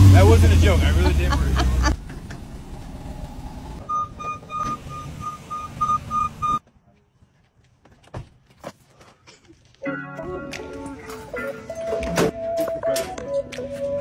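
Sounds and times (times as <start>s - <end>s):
truck engine running: 0.0s - 6.6s
truck reversing alarm beeping: 3.8s - 6.6s.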